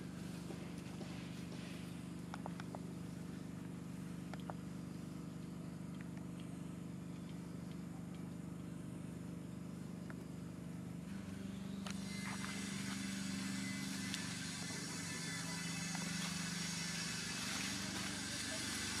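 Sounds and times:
motor engine hum: 0.0 - 19.0.

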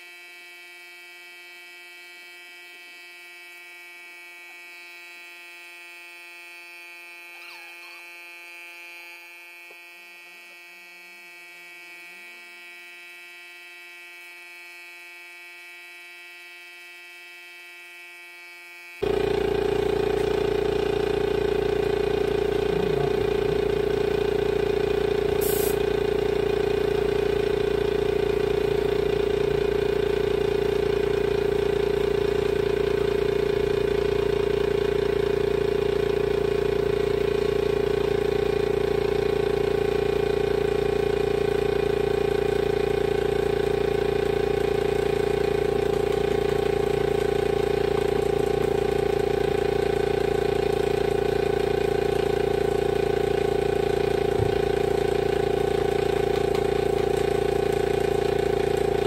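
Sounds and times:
air compressor running: 0.0 - 12.4, 19.0 - 59.0
electric hum with high whine: 0.0 - 59.0.

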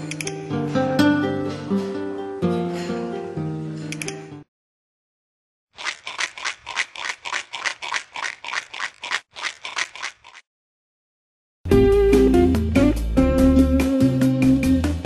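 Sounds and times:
guitar music: 0.4 - 3.6
ice rattling in cocktail shaker: 5.8 - 10.4.

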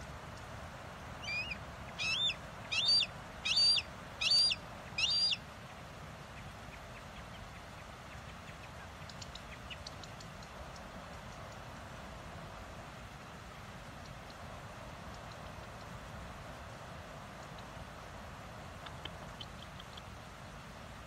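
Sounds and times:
hawk screaming calls: 1.2 - 5.4.

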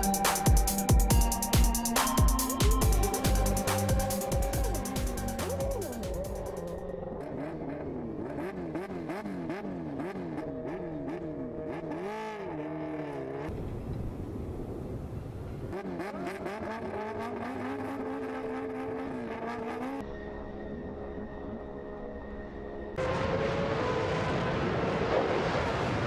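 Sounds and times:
racing car engine revving: 2.9 - 13.5, 15.7 - 20.0.

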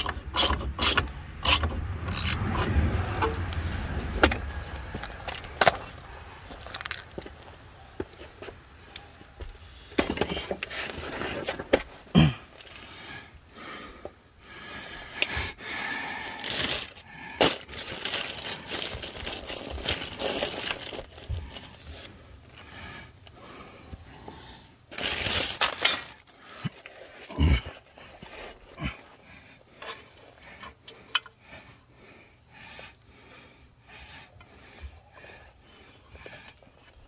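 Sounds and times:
metallic clinks and knocks: 25.0 - 26.3.

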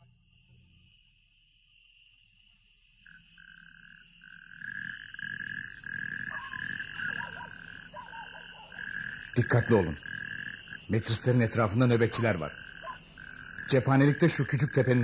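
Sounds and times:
frogs croaking: 0.0 - 15.0
high insect-like trill: 0.0 - 15.0.

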